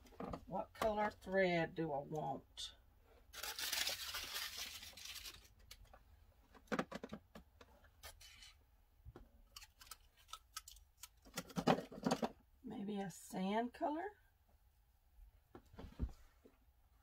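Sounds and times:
thread spools rustling and scraping: 0:03.1 - 0:06.0, 0:07.8 - 0:08.6.

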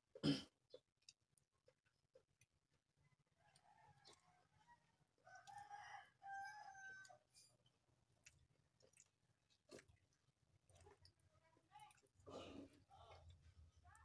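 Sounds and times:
faint rooster crowing: 0:03.0 - 0:07.5.

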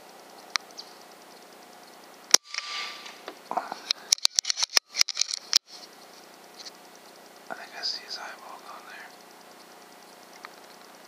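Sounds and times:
air rifle shot crack: 0:02.3 - 0:03.2
short hiss: 0:02.5 - 0:04.2.

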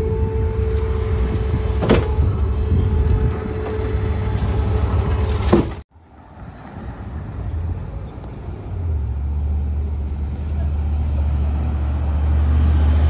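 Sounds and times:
garbage truck engine rumble: 0:00.0 - 0:05.8, 0:06.7 - 0:13.0.

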